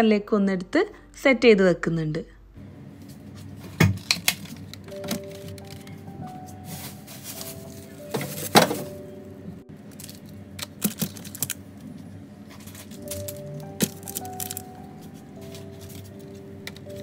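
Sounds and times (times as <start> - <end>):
soft background music: 0.0 - 3.6, 4.2 - 17.0
plastic packaging clacking on shelf: 3.8 - 6.0, 6.7 - 9.0, 9.9 - 11.6, 12.5 - 14.7
packaging knocks and crinkles: 3.8 - 9.0, 9.9 - 11.6, 12.5 - 17.0.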